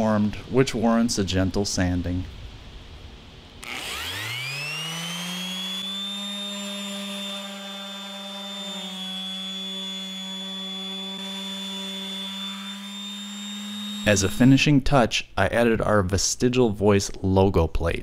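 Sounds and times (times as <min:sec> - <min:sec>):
orbital sander whine: 0:03.6 - 0:14.6.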